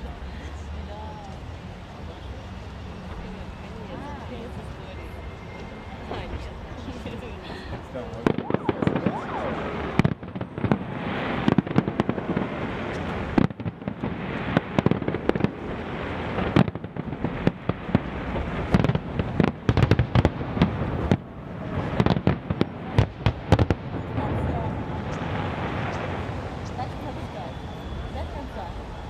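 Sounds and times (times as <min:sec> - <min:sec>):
fireworks crackling: 0:05.6 - 0:29.0.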